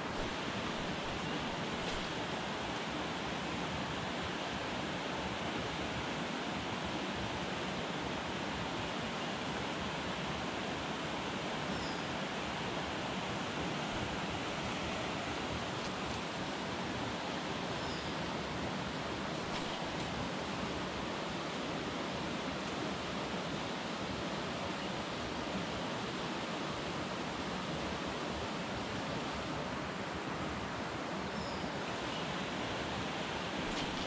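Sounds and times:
flowing river water: 0.0s - 34.0s.

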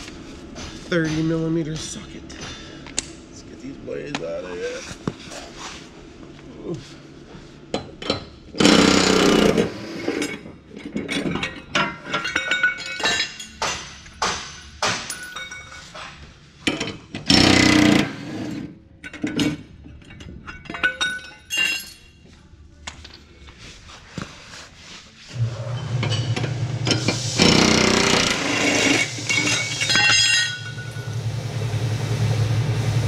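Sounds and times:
impact wrench hammering: 17.2s - 18.1s, 26.0s - 31.2s.

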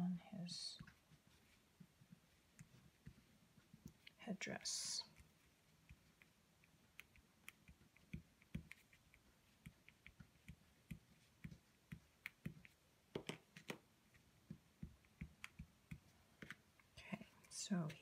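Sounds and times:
crayon tapping on paper: 9.6s - 13.8s, 14.4s - 16.6s.

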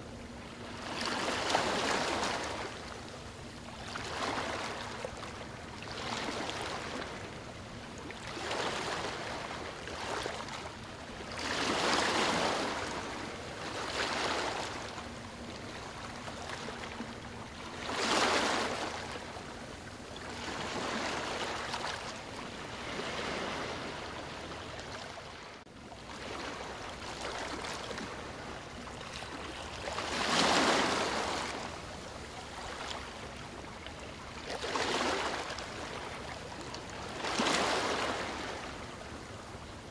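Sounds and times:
waves breaking: 0.0s - 39.9s
ocean surf: 11.3s - 19.6s, 20.3s - 33.8s, 34.6s - 36.4s, 37.0s - 39.3s.

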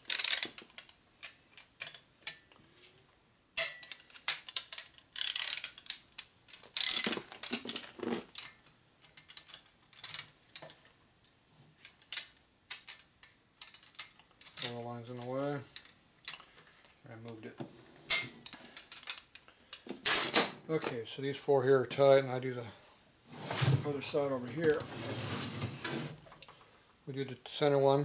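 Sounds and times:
ratchet wrench clicking: 0.0s - 0.5s, 4.6s - 6.0s, 6.8s - 7.1s.

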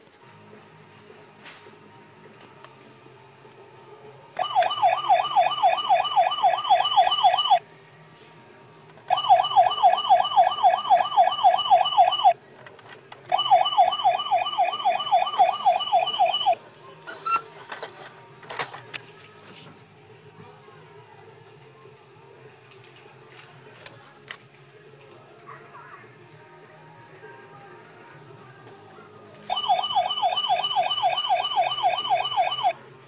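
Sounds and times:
toy siren warbling wail: 4.4s - 7.6s, 9.1s - 12.3s, 13.3s - 16.6s, 29.5s - 32.7s.

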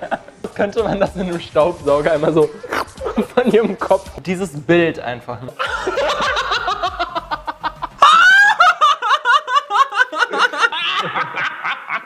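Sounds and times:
people laughing hard: 0.0s - 0.4s, 2.6s - 4.0s, 5.6s - 12.0s.

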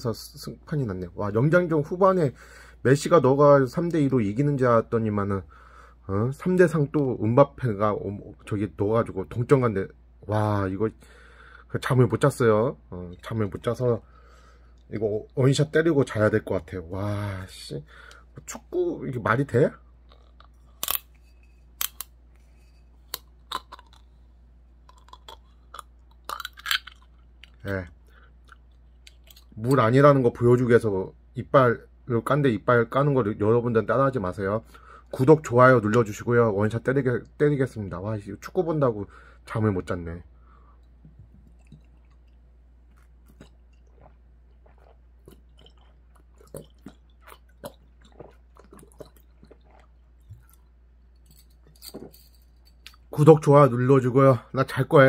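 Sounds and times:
wet mouth clicks: 23.1s - 24.1s, 24.9s - 27.8s
swallowing gulps: 40.8s - 50.8s.

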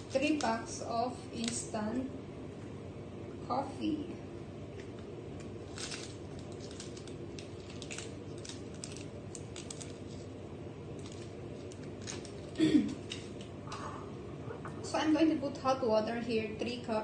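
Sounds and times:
steady low hum: 0.0s - 17.0s
sachets crinkling and tearing: 1.4s - 1.7s, 4.7s - 13.8s.

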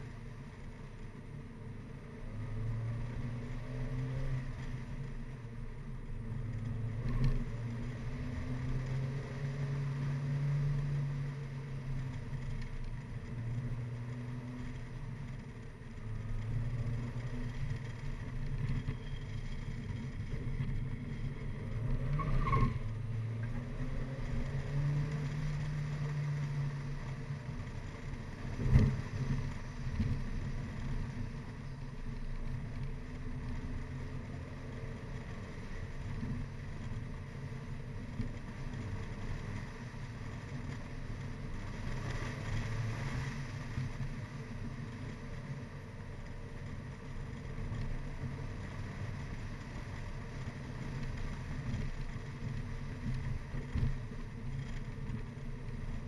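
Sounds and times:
car engine drone: 0.0s - 56.0s
road and wind noise: 0.0s - 56.0s.

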